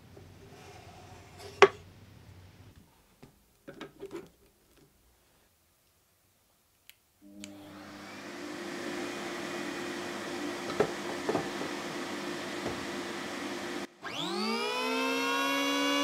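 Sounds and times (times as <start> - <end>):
shop vacuum humming: 7.2 - 16.0.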